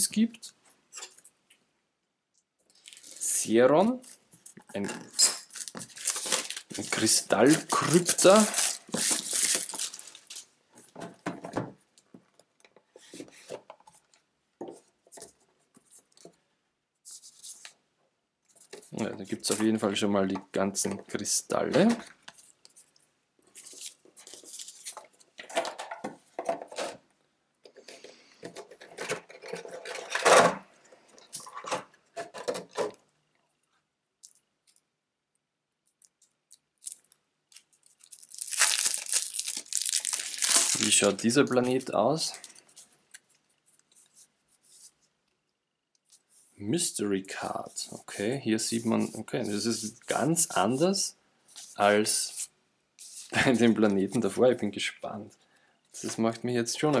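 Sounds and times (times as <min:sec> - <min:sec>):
plastic wrap crinkling: 0:05.1 - 0:10.5, 0:35.9 - 0:44.0.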